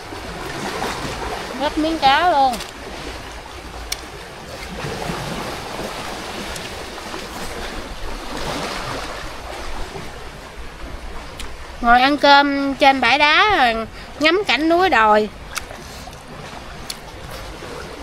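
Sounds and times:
waves washing against rocks: 0:00.0 - 0:12.4.

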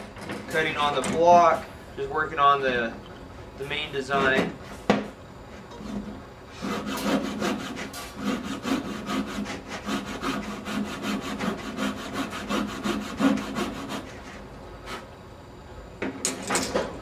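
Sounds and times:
coping saw rasping through wood: 0:06.5 - 0:15.0.

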